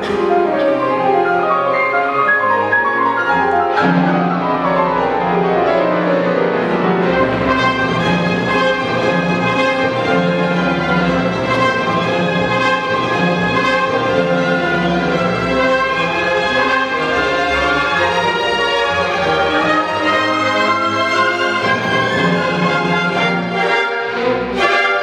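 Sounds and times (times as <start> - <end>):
orchestra playing strings to the fore: 0.0 - 25.0.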